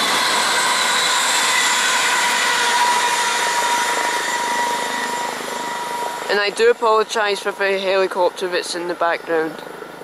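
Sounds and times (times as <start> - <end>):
high whine: 0.0 - 7.6
train passing at speed: 0.0 - 10.0.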